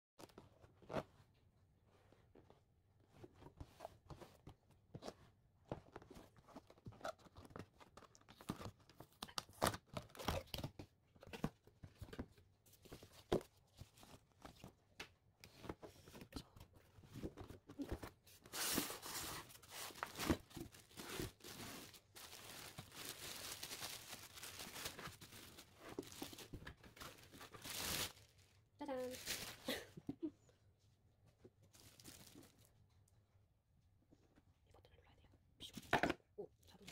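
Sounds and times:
plastic bag crinkling: 0:19.9 - 0:26.5, 0:27.5 - 0:29.8.

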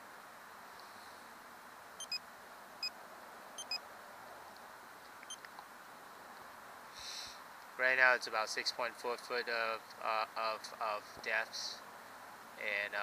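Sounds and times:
steady background hiss: 0:00.0 - 0:13.0
keypad beeps: 0:02.0 - 0:02.2, 0:03.6 - 0:03.8.

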